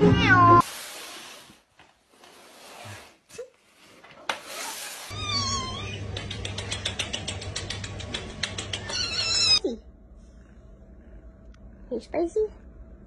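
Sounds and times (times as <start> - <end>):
cat mewing: 5.1 - 6.2
steady low hum: 5.2 - 13.0.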